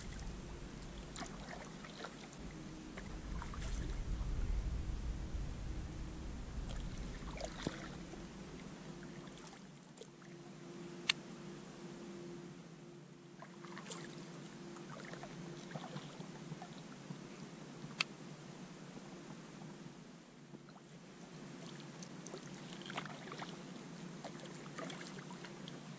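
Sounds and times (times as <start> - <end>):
water trickling off paddle: 0.0 - 9.6
paddle pulling through water: 0.0 - 10.7, 13.4 - 17.5, 20.6 - 25.9.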